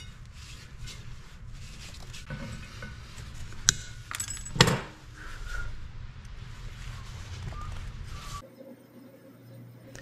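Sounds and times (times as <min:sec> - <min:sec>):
metal tools clinking and rattling: 0:03.7 - 0:04.9.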